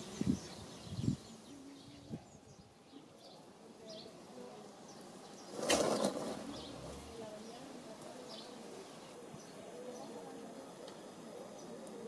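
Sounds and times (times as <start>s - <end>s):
small birds chirping: 0.0s - 12.0s
loud rustling burst: 5.5s - 7.2s.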